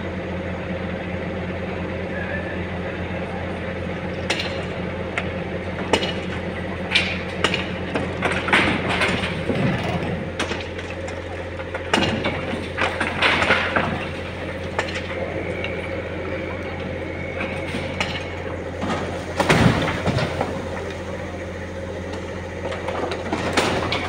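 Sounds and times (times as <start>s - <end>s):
crane engine running: 0.0s - 24.0s
masonry knocking and crashing: 18.8s - 20.8s.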